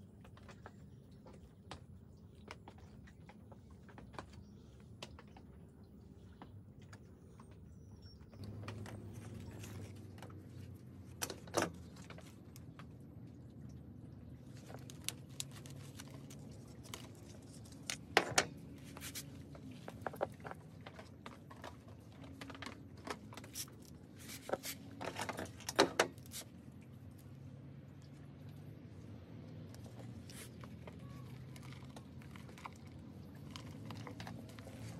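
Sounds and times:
plastic strip rustling: 14.6s - 18.2s.

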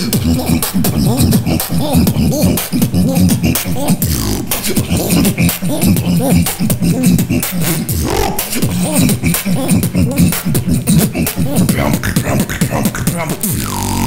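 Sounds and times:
beatboxing drum hits and clicks: 0.0s - 14.0s
hummed voice sliding in pitch: 7.9s - 9.0s.

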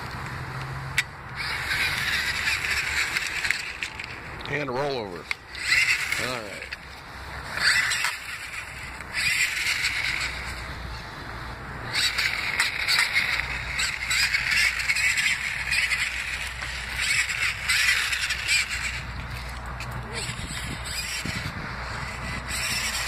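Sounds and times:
toy truck motor buzzing: 0.8s - 4.2s, 5.0s - 23.0s.

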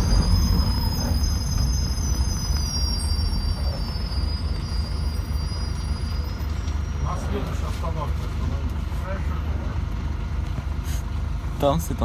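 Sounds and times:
bus brakes squealing: 0.0s - 8.1s
bus engine rumble: 0.0s - 12.0s.

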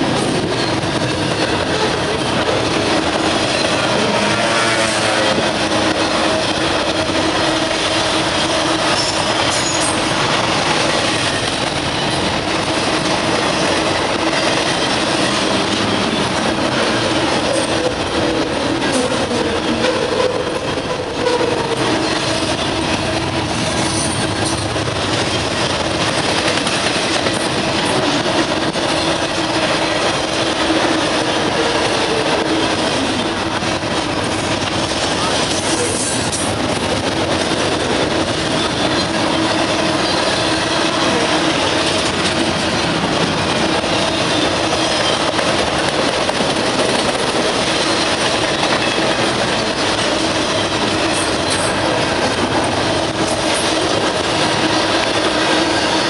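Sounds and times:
freight train wheels rumbling: 0.0s - 56.0s
wheel squeal: 8.9s - 10.1s.

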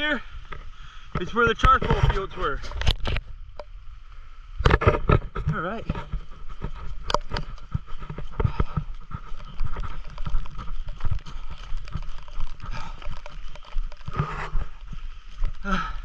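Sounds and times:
handheld camera jostling: 1.7s - 3.3s, 4.6s - 15.6s
boot footsteps on wet grass: 5.5s - 16.0s
footsteps on gravel: 5.5s - 16.0s.

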